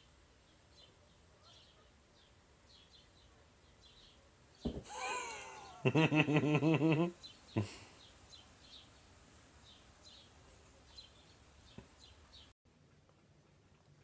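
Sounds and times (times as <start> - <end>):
thump: 4.6 - 4.9.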